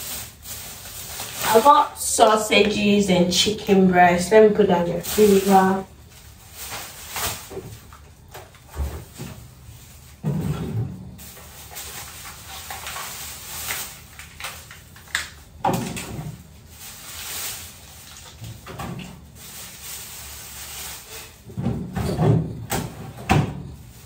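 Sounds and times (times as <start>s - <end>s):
freezer drawers knocking: 10.2s - 11.2s, 21.4s - 23.8s.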